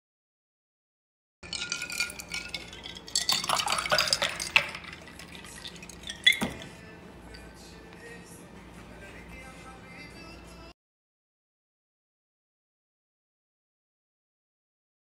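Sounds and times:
ice cubes clinking in glass: 1.4s - 6.7s
liquid splashing over ice: 1.5s - 6.6s.

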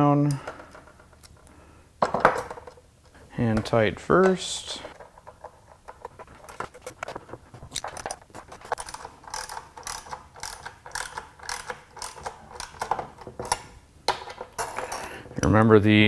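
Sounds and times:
hand ratchet clicking: 8.7s - 13.7s.

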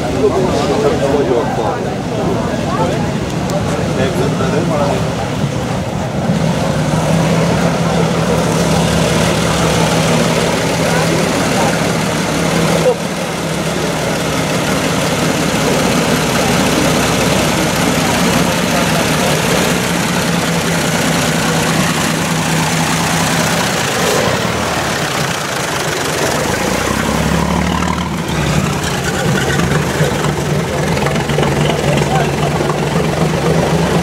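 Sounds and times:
car engine idling: 0.0s - 34.0s
deeper engine note: 0.0s - 34.0s.

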